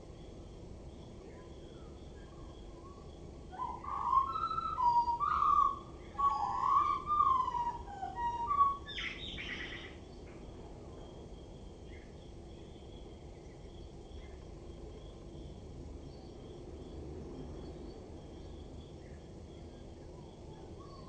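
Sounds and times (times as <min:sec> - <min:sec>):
blackbird singing: 0:01.3 - 0:10.0.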